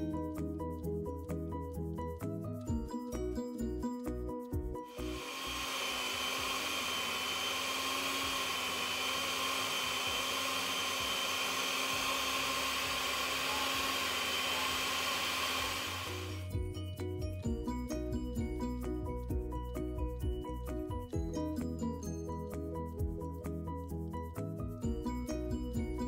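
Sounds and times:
background music: 0.0s - 8.6s, 15.8s - 26.0s
blender running: 4.9s - 16.6s.

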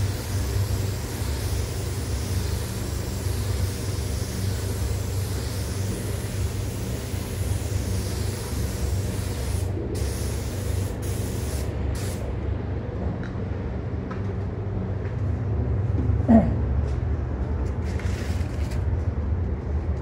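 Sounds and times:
spray gun hissing: 0.0s - 12.2s
ventilation rumble: 0.0s - 20.0s.

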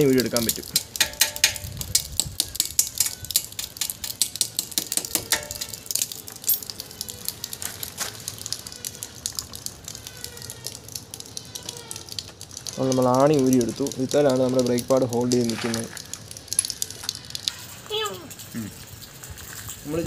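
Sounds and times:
metallic taps on steel rod: 0.5s - 5.7s.

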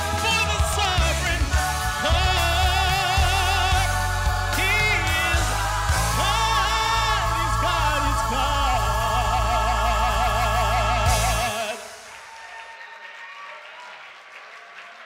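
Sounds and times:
backing track with heavy bass: 0.0s - 11.9s
man singing with vibrato: 0.0s - 12.2s
faint audience applause: 11.7s - 15.0s.

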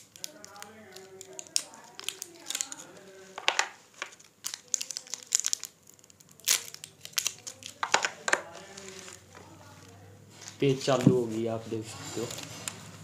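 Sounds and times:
plastic wrapping crinkling and tearing: 0.0s - 11.0s, 12.1s - 13.0s.

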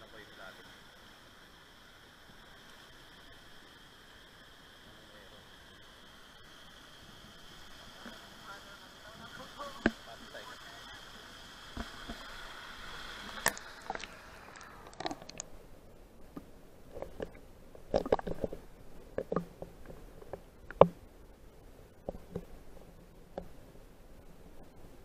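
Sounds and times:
steady high hum: 0.0s - 25.0s
underwater knocks and gurgles: 9.8s - 10.1s, 11.7s - 12.4s, 13.0s - 15.5s, 16.2s - 21.1s, 21.9s - 23.8s.

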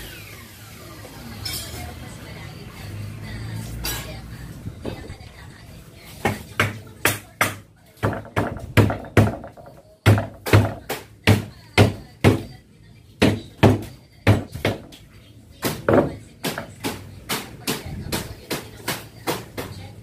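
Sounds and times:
wood knocking on window frame: 6.3s - 12.5s, 15.7s - 17.0s.

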